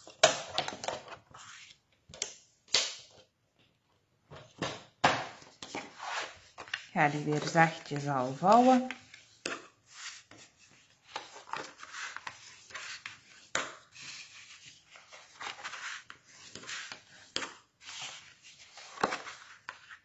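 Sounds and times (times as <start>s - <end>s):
card rustling and scraping: 5.5s - 20.0s.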